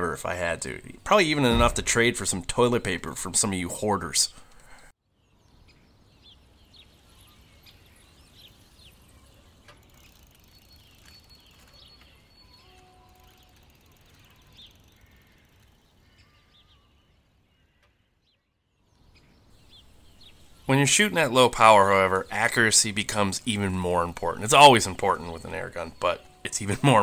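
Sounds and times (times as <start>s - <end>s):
distant bird chirps: 5.3s - 27.0s
faint outdoor ambience: 18.8s - 27.0s.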